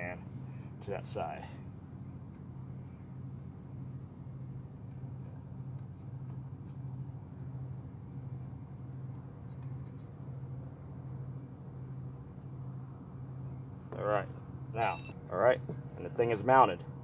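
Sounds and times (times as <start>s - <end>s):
low steady hum: 0.0s - 15.9s
cricket chirping: 1.8s - 9.4s, 10.2s - 15.2s.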